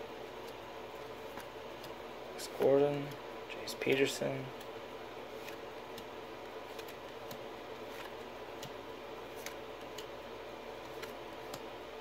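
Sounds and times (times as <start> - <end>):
low room hum: 0.0 - 12.0
trading cards clicking: 1.2 - 4.7, 5.4 - 10.2, 10.8 - 11.7.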